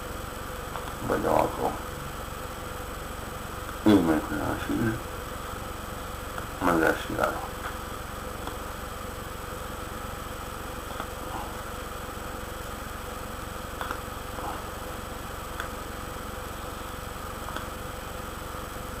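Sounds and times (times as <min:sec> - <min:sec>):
low hum with hiss: 0:00.0 - 0:19.0.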